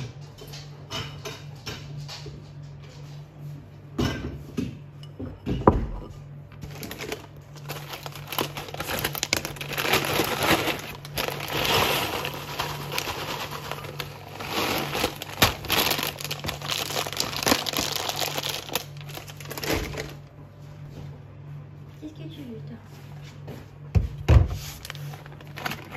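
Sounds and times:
plastic bag crinkling: 6.6 - 20.3, 24.7 - 25.9
cereal clattering into bowl: 6.7 - 20.2.

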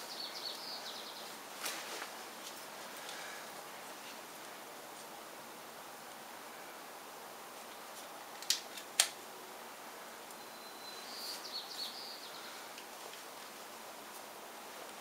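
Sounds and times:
steady hiss: 0.0 - 15.0
faint high warbling chirp: 10.3 - 12.4.

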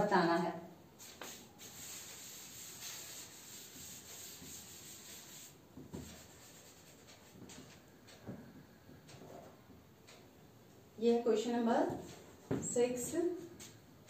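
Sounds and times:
chalk wiped off blackboard: 1.0 - 7.4
soft knocks: 11.9 - 12.8.

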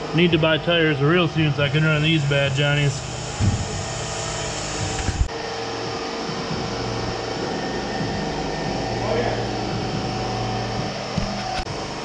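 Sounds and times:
mechanical whooshing with hum: 0.0 - 12.0.

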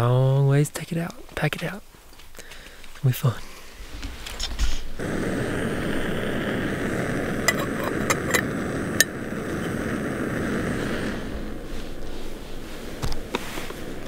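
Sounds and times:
gas stove burner rushing: 4.9 - 14.0.

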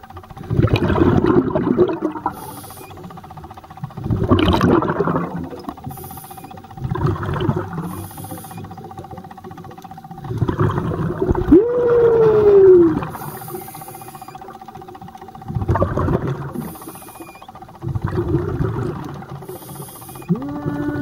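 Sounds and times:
exhaled bubbles rumbling: 0.3 - 14.7, 15.3 - 21.0
regulator inhalation hiss: 2.2 - 3.2, 5.8 - 6.7, 7.8 - 9.1, 13.1 - 14.5, 16.5 - 17.6, 19.3 - 20.5.

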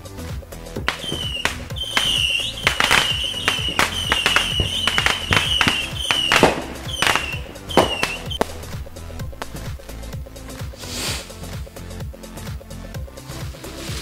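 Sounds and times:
background music: 0.0 - 14.0
fireworks cracking and whistling: 0.8 - 11.3.

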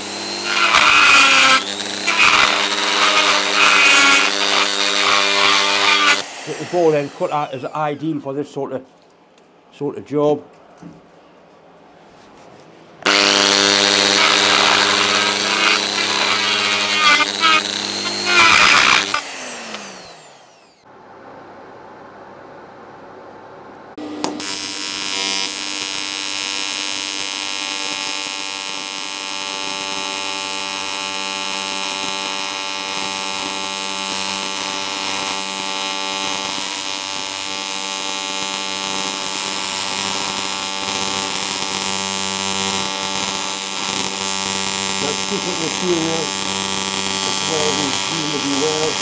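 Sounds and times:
welding arc buzzing: 0.0 - 8.0, 13.0 - 20.8, 24.0 - 49.0
welder arc strike click: 24.2 - 24.6.

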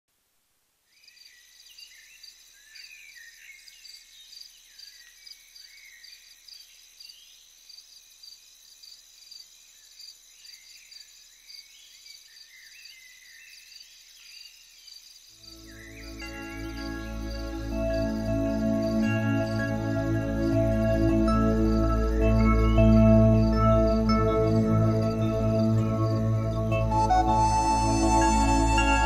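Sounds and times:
insects chirping: 0.9 - 29.0
birds chirping: 11.8 - 29.0.

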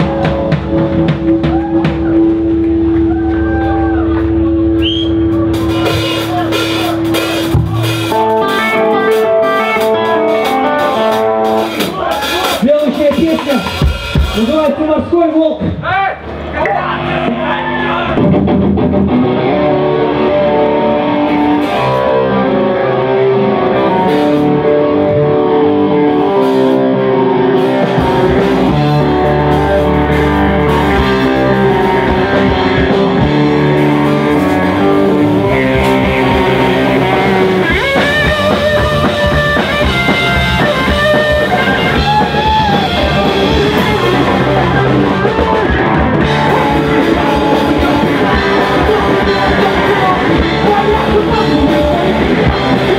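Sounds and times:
electric guitars: 0.0 - 15.0, 15.7 - 52.9
bass guitar: 0.0 - 52.9
drum kit: 0.0 - 52.9
lead vocalist singing: 42.6 - 52.9.

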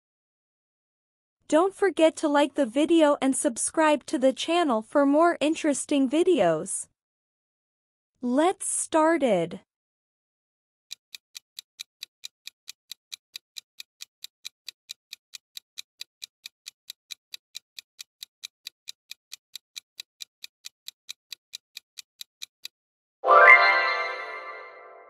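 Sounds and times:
clock ticking: 10.9 - 22.8.

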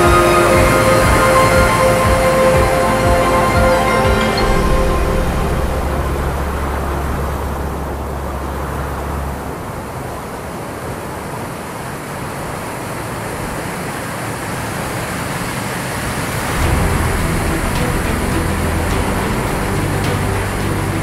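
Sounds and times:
deep low hum: 0.0 - 9.9, 16.5 - 21.0
waterfall roaring: 0.0 - 21.0.

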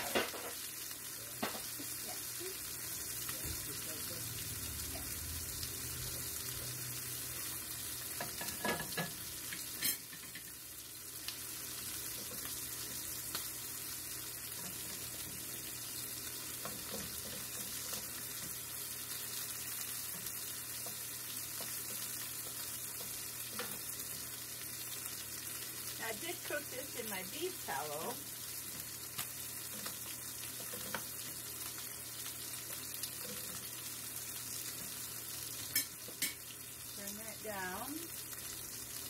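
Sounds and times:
meat sizzling in a frying pan: 0.0 - 39.0.

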